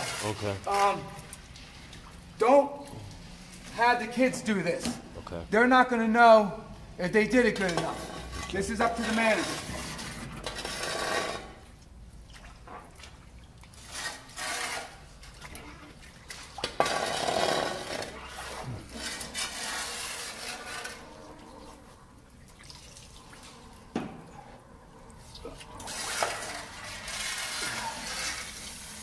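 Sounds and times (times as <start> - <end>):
hose water splashing in mud: 0.0 - 2.0, 12.3 - 21.3, 25.2 - 29.0.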